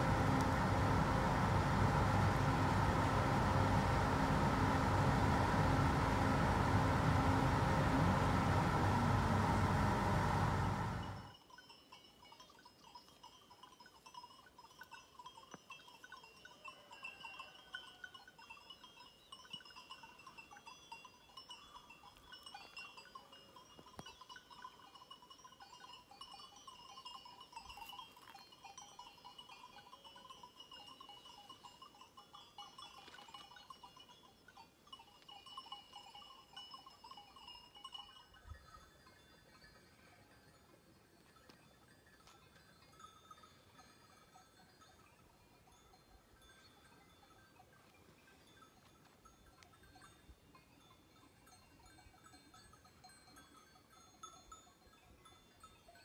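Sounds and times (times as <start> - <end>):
car driving on road: 0.0 - 11.3
distant livestock bells tinkling: 0.0 - 56.0.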